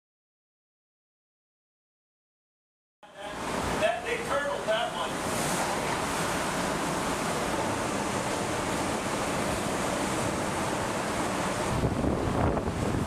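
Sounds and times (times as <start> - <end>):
ship rushing through sea: 3.0 - 13.0.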